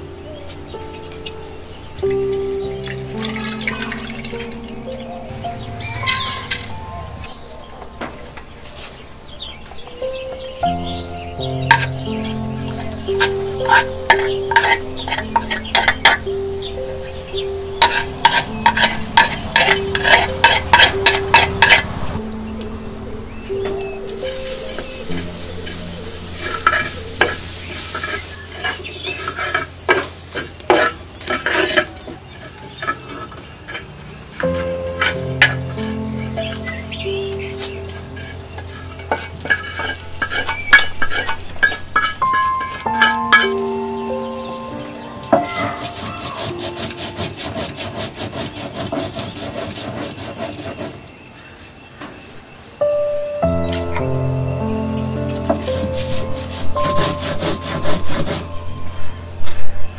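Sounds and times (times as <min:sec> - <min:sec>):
music: 0:00.0 - 0:32.0, 0:34.3 - 0:49.0, 0:52.8 - 0:59.9
light sizzle: 0:00.0 - 0:47.3, 0:51.5 - 0:59.9
stone roller grinding seeds: 0:10.6 - 0:22.0, 0:23.6 - 0:51.1, 0:55.2 - 0:58.8
spatula scraping a clay pan: 0:11.6 - 0:16.4, 0:17.8 - 0:21.9, 0:24.2 - 0:44.2, 0:45.3 - 0:51.1, 0:55.5 - 0:58.7.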